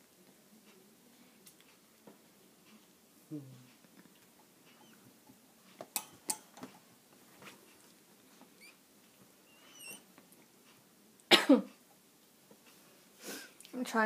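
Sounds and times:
puppies squeaking: 4.7s - 5.1s, 9.4s - 10.1s.

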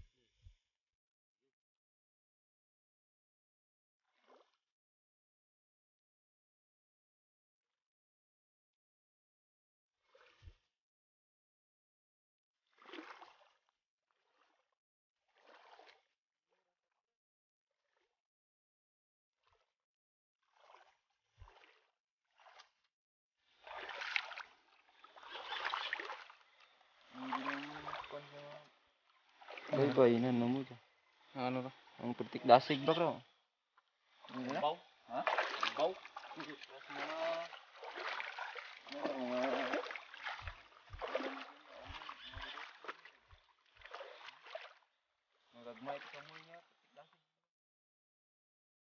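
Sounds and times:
water splashing and sloshing: 4.1s - 4.6s, 10.0s - 10.7s, 12.7s - 17.0s, 19.4s - 19.8s, 20.4s - 47.1s.

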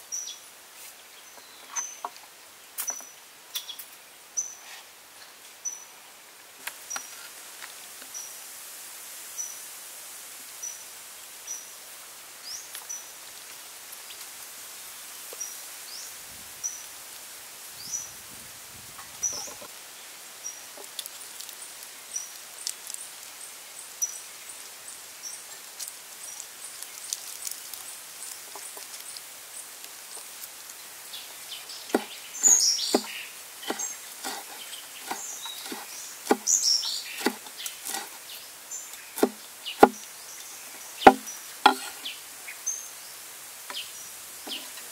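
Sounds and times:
quiet outdoor ambience: 0.0s - 44.9s
bird chirping: 31.1s - 43.1s, 43.7s - 44.9s
knife chopping on wooden block: 31.9s - 32.1s, 32.9s - 36.5s, 37.2s - 38.1s, 39.2s - 40.0s, 41.0s - 42.0s.

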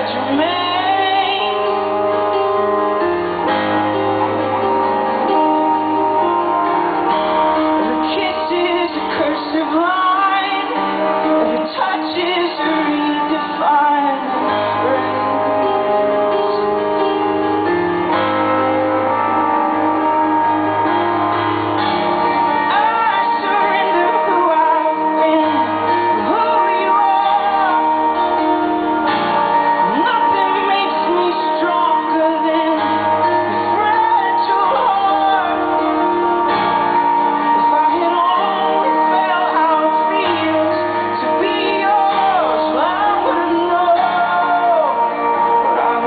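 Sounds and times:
keyboard chords: 0.0s - 46.0s
man singing: 7.8s - 16.4s, 22.7s - 29.1s, 29.7s - 46.0s.

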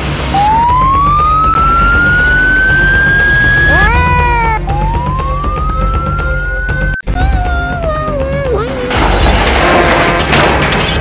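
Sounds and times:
background music: 0.0s - 11.0s
siren wailing: 0.2s - 7.0s.

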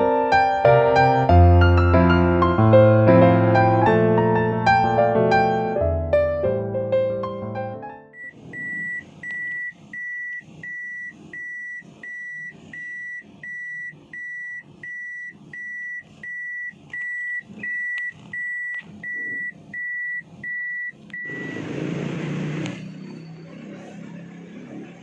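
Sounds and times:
car warning beeps: 8.2s - 21.7s, 22.6s - 23.9s.

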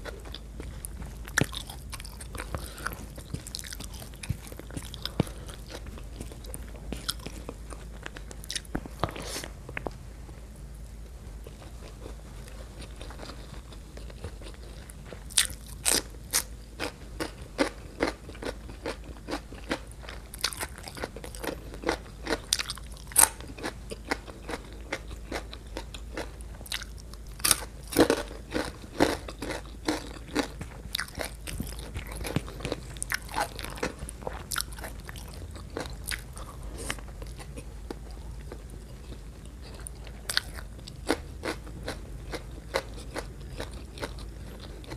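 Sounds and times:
person chewing food: 0.0s - 10.0s, 11.0s - 44.9s.

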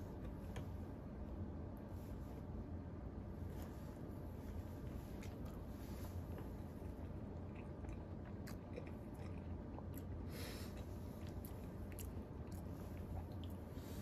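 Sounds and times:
low room hum: 0.0s - 14.0s
person chewing fries: 5.0s - 13.7s.

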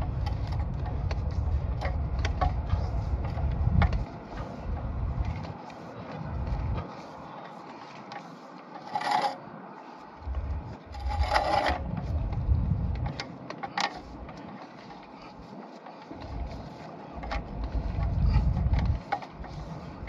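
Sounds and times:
low rumble: 4.7s - 5.5s, 10.2s - 13.2s, 17.4s - 19.0s
cable rubbing on reel: 6.4s - 20.0s
rattles: 10.3s - 15.3s.

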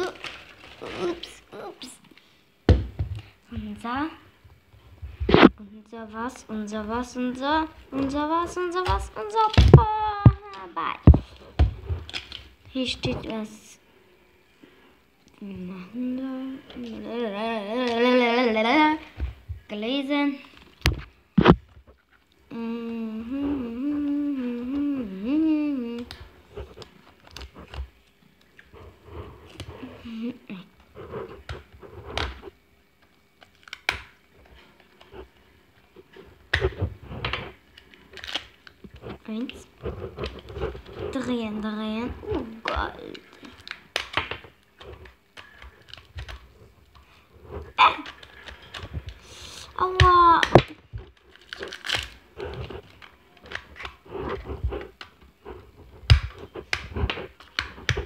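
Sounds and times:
plastic wrapping crinkling: 0.0s - 1.8s, 6.1s - 13.5s, 25.8s - 58.0s.

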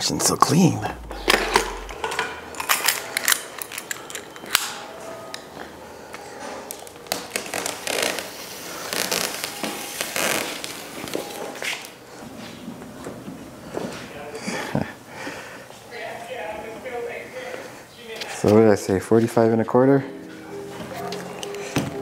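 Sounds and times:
materials crinkling and scraping: 6.8s - 11.5s.

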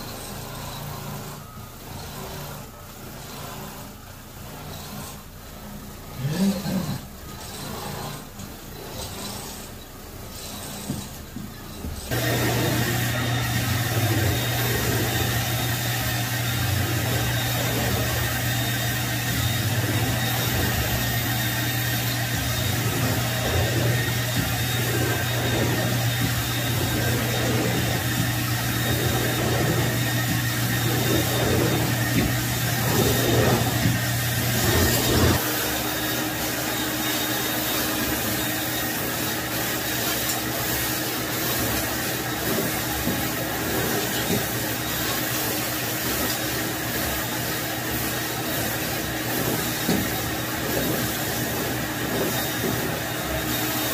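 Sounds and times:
carpet extractor vacuum motor: 0.0s - 53.9s
floor wand strokes on carpet: 12.1s - 53.9s.

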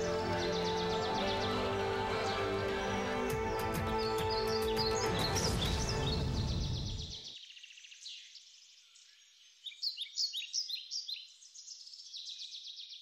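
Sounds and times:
music track: 0.0s - 7.2s
songbirds chirping: 0.0s - 13.0s.

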